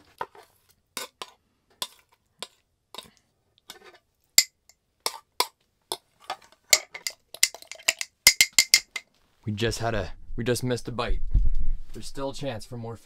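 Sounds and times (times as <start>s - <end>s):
sharp clinks and clicks: 6.7s - 9.0s.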